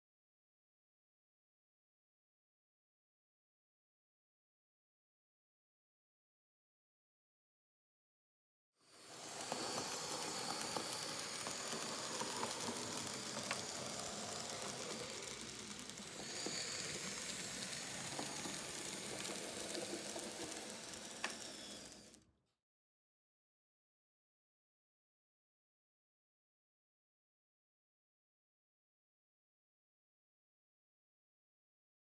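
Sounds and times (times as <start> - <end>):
hiss from model train track: 8.8 - 22.3
high motor whine: 8.9 - 22.2
faint clicks: 9.1 - 22.2.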